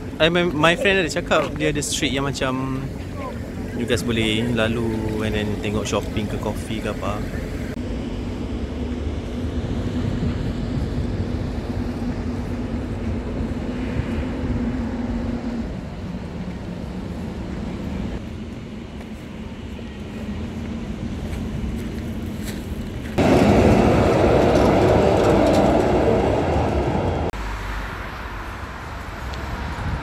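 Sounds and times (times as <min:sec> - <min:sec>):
low rumble of traffic: 0:00.0 - 0:30.0
loud burst of noise: 0:23.2 - 0:27.2.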